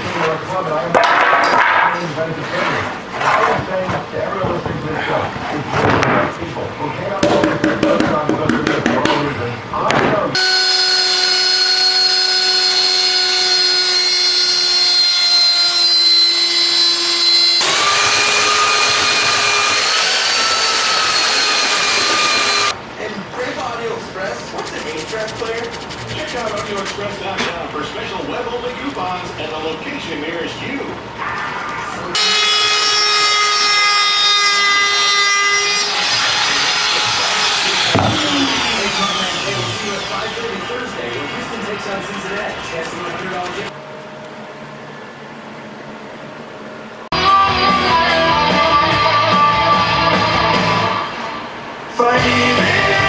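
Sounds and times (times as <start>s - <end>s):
belt sander on wood: 10.4s - 22.8s, 24.5s - 30.9s, 34.8s - 43.7s
wood router motor whine: 10.4s - 22.8s, 32.2s - 43.7s
motor spinning down: 16.9s - 22.7s, 36.0s - 40.7s.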